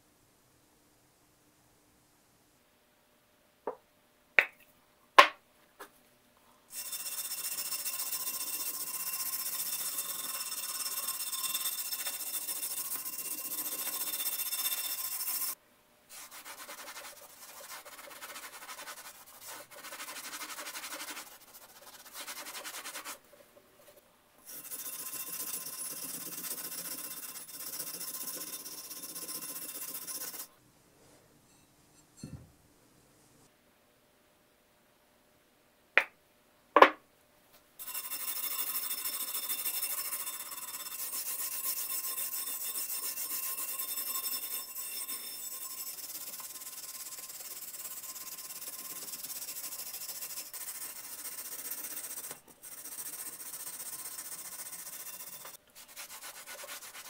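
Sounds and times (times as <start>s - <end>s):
brush scrubbing metal: 6.8s - 30.5s, 37.9s - 57.0s.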